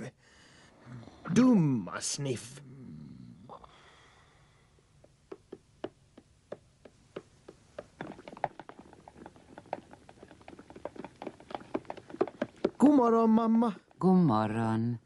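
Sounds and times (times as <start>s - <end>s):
light taps and knocks: 5.0s - 12.9s.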